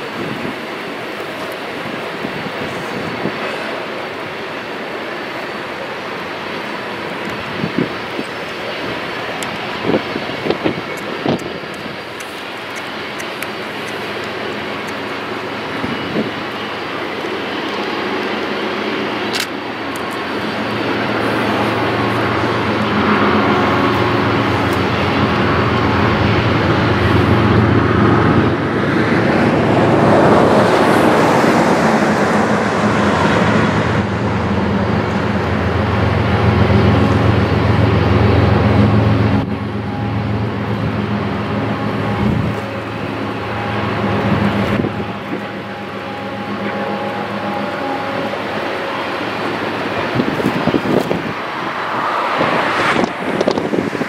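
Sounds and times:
diesel locomotive engine drone: 0.0 - 54.0
freight cars rumbling: 0.0 - 54.0.

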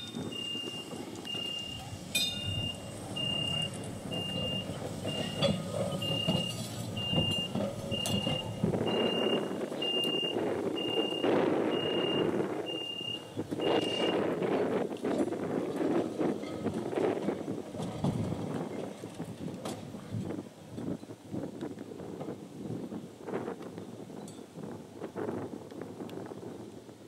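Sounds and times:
level crossing warning beeps: 0.0 - 14.3
tram rumbling on track: 0.0 - 27.0.

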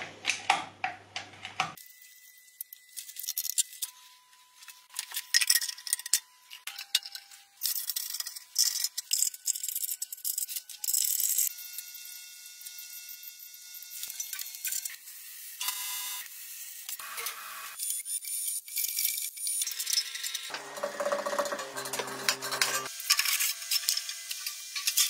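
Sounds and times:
metal parts clicking and rattling: 2.6 - 3.9, 4.9 - 11.5, 17.8 - 25.0.

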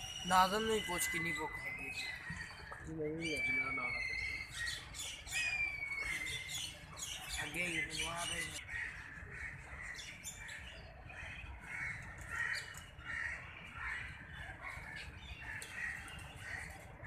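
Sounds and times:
crows cawing: 8.6 - 10.6, 11.2 - 16.8.

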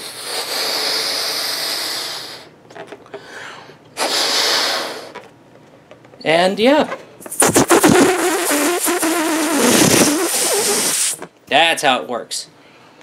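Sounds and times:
breath blowing up a balloon: 0.0 - 2.6, 3.2 - 5.3, 7.3 - 11.3.

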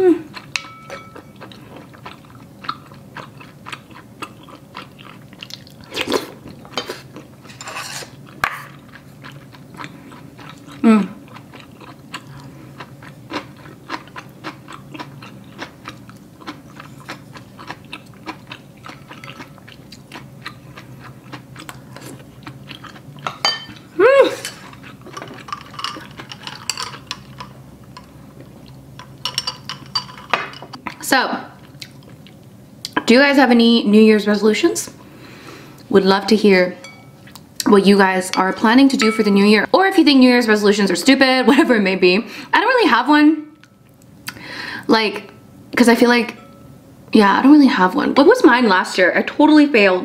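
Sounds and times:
person humming with enjoyment: 0.0 - 0.4, 10.8 - 11.2, 23.9 - 24.5
chewing and slurping: 0.3 - 29.1
utensils clicking on ceramic bowl: 25.2 - 28.1.

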